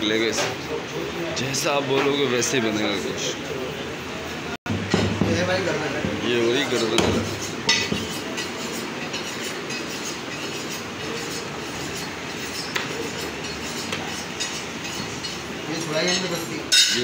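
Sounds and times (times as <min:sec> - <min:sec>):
low background noise: 0:00.0 - 0:17.0
blade knocking on chopping block: 0:06.9 - 0:08.1.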